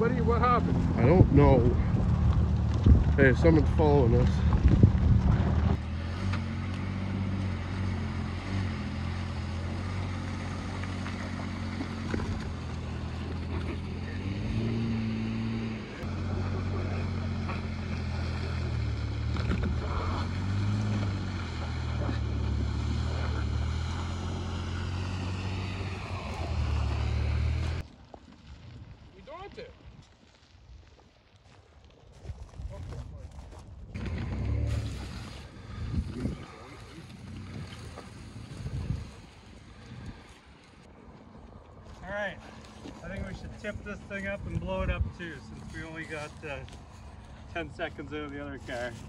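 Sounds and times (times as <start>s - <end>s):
vehicle engine revving: 0.0s - 27.9s, 33.9s - 40.9s.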